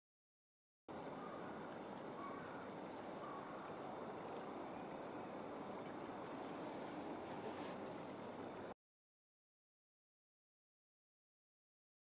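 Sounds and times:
high bird chirps: 4.9s - 5.6s.

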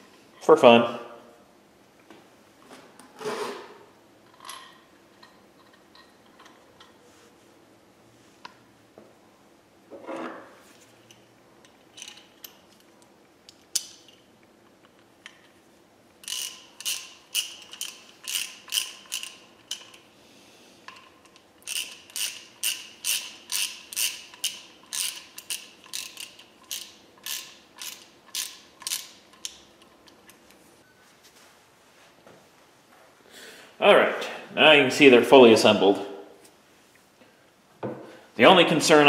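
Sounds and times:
hand ratchet clicking: 16.2s - 20.0s, 20.9s - 30.2s.

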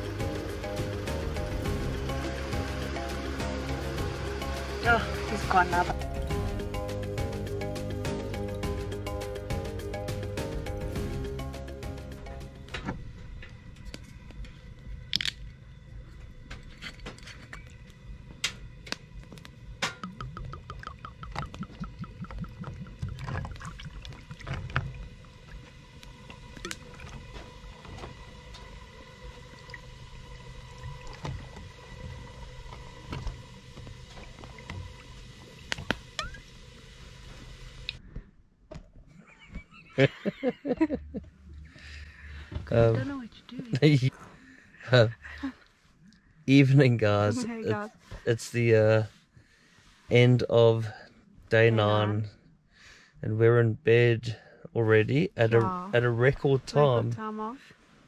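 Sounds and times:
low background hum: 10.8s - 58.0s
wood fire crackling: 12.6s - 20.2s, 20.8s - 38.0s
drink pouring over ice: 20.1s - 27.4s.

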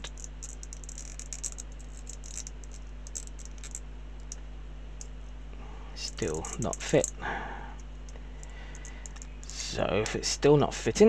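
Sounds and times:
plastic parts clicking: 0.0s - 4.4s, 8.4s - 9.6s
steady low hum: 0.0s - 11.0s.

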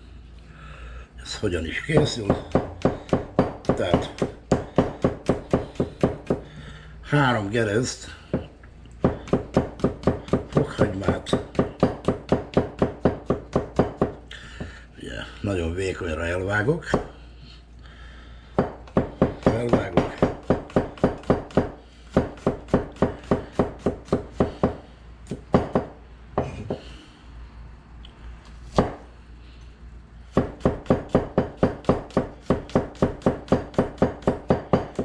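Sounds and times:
knife chopping on cutting board: 1.9s - 6.4s, 8.3s - 14.7s, 18.6s - 26.9s, 28.7s - 29.0s, 30.3s - 35.0s.

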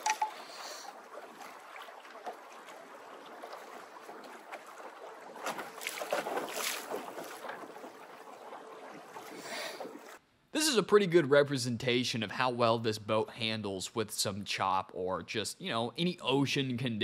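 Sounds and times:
waves slapping against hull: 0.0s - 10.2s.

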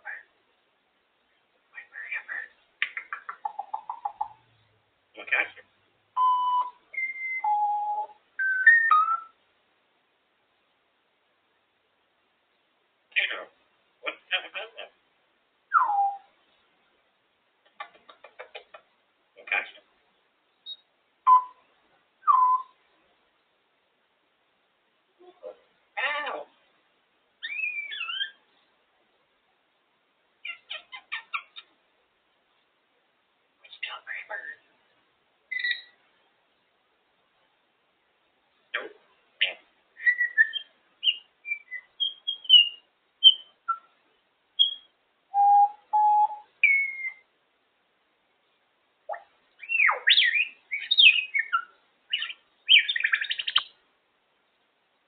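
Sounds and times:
parrot clicks and peeps: 2.8s - 4.4s
parrot whistles: 6.2s - 9.3s, 22.2s - 22.8s, 40.0s - 43.9s, 44.6s - 47.2s.

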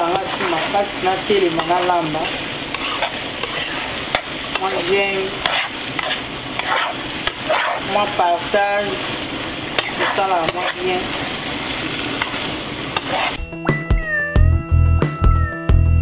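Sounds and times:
fish sizzling in a wok: 0.0s - 13.4s
spatula scraping and tapping pan: 1.6s - 8.0s, 9.8s - 10.8s, 12.2s - 13.4s.

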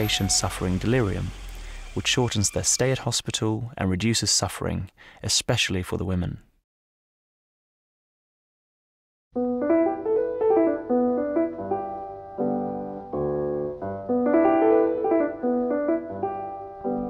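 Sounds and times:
light piano tune: 9.4s - 17.0s.

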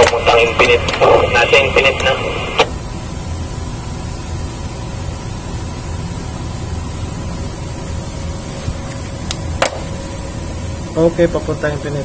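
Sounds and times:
faint steady tones: 0.0s - 8.2s
engine-room machinery drone: 0.0s - 12.0s.

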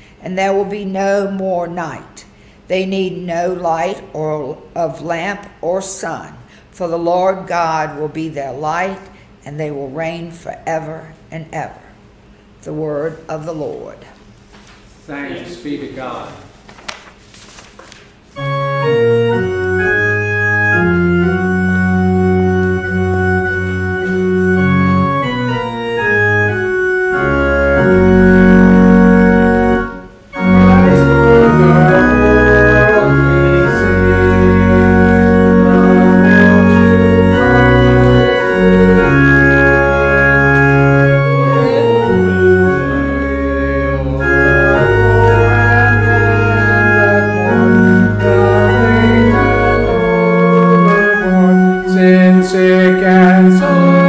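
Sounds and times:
organ playing sustained chords: 18.3s - 54.0s.

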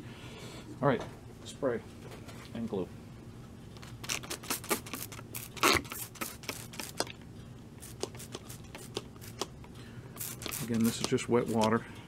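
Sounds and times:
spray bottle squirting: 4.0s - 7.1s, 7.8s - 9.6s, 10.2s - 11.7s.

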